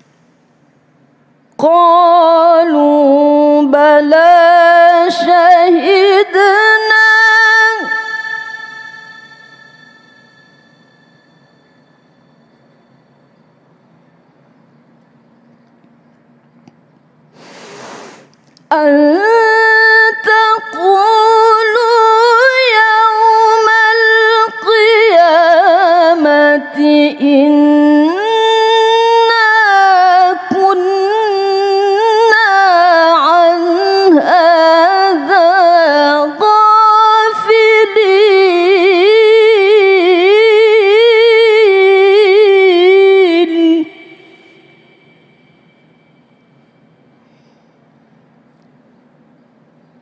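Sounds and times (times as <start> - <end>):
woman reciting melodically: 1.6 - 10.3, 18.6 - 45.2.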